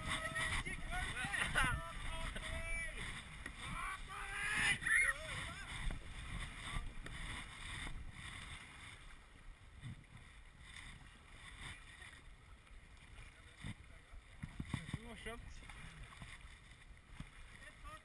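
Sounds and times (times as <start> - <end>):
whitewater rushing: 0.0 - 7.8
wind buffeting on microphone: 0.0 - 9.1, 9.7 - 12.0, 13.4 - 17.9.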